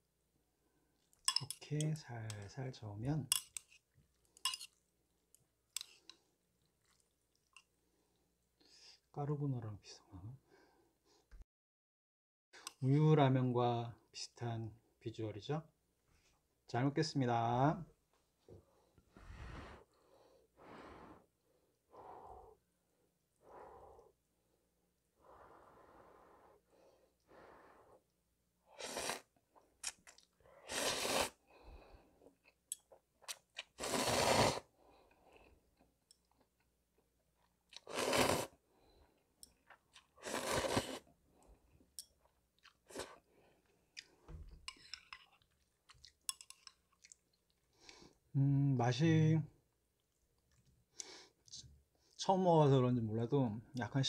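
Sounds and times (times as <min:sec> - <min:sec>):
chewing: 0:05.8 - 0:07.7, 0:42.0 - 0:48.2, 0:50.0 - 0:51.1
person slurping noodles: 0:28.7 - 0:29.3, 0:30.6 - 0:31.4, 0:33.6 - 0:34.7, 0:37.8 - 0:38.6, 0:40.2 - 0:41.1.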